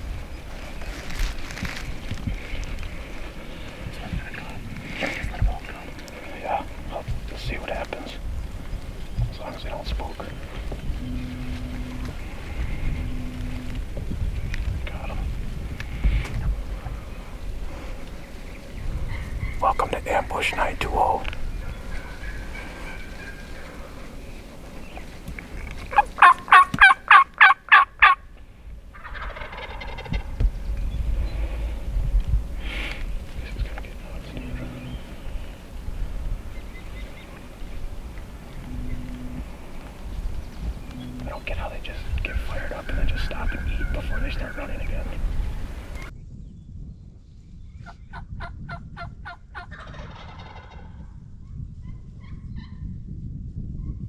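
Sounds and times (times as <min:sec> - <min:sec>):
wind rumble on microphone: 0:00.0 - 0:54.0
wild turkey yelping: 0:21.1 - 0:24.1, 0:25.9 - 0:28.2, 0:28.9 - 0:30.3, 0:42.3 - 0:44.8, 0:49.6 - 0:50.8
turkey rattling gobble: 0:25.9 - 0:28.2, 0:28.9 - 0:30.3, 0:42.3 - 0:44.8, 0:48.4 - 0:50.9.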